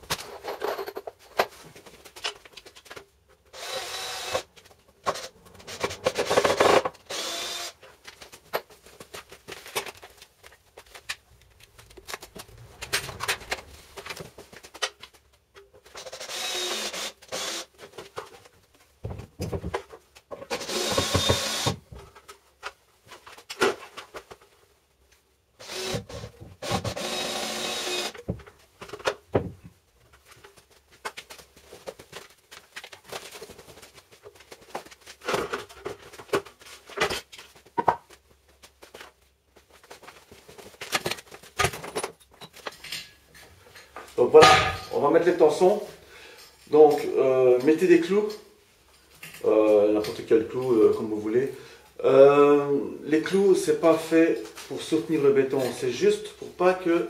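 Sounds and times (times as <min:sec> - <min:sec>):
wood and metal clattering: 0:00.0 - 0:03.5, 0:07.9 - 0:16.5, 0:39.8 - 0:45.1
cordless drill driving screws: 0:03.6 - 0:04.5, 0:05.2 - 0:07.8, 0:16.0 - 0:17.7, 0:20.5 - 0:21.8, 0:25.6 - 0:28.2.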